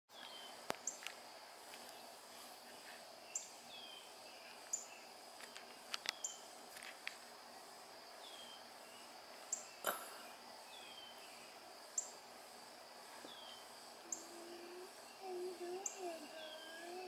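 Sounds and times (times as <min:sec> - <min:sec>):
small birds chirping: 0:00.1 - 0:17.0
faint high hiss: 0:00.2 - 0:17.0.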